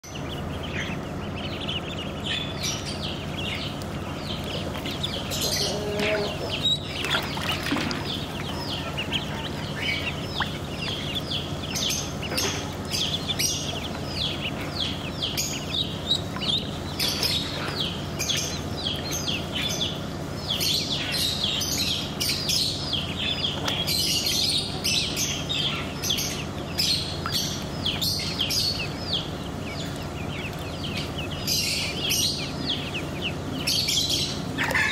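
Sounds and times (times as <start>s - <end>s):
ducklings peeping: 0.0s - 34.9s
steady low hum: 0.0s - 34.9s.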